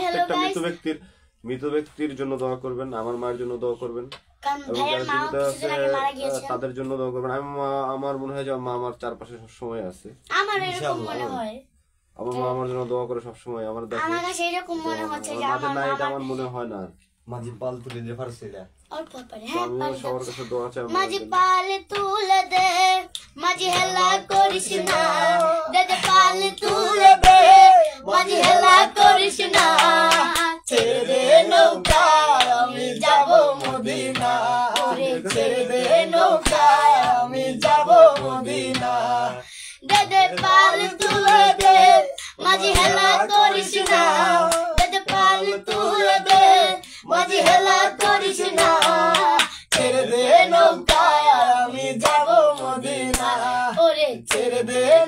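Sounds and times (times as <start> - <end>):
girl singing unaccompanied: 0.0 - 0.8, 4.4 - 6.6, 10.3 - 11.6, 13.9 - 16.5, 19.4 - 55.0
hand claps: 21.9 - 39.2, 39.8 - 54.6.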